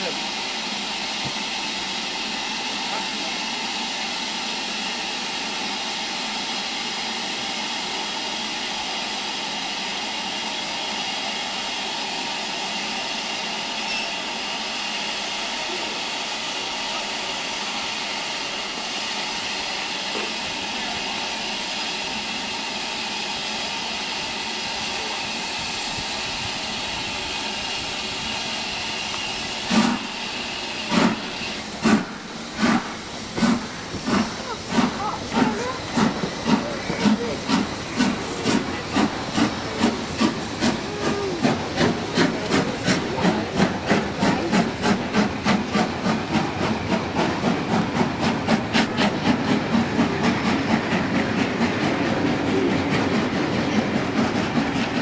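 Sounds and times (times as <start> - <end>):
steam hissing: 0.0 - 55.0
locomotive exhaust beat: 24.4 - 55.0.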